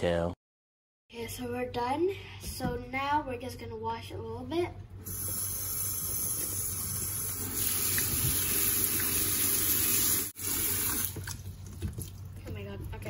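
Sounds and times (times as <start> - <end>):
tap water splashing on corn: 10.8 - 12.3.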